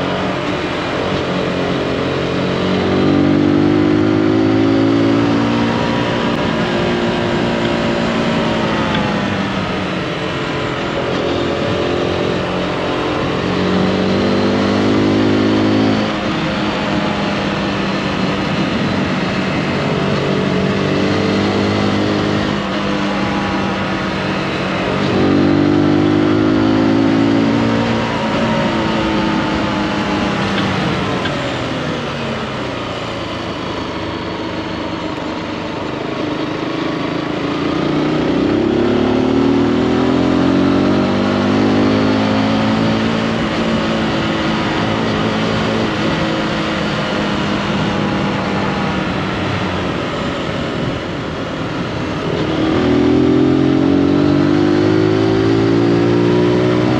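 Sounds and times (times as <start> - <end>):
motorcycle engine revving: 0.0 - 56.9.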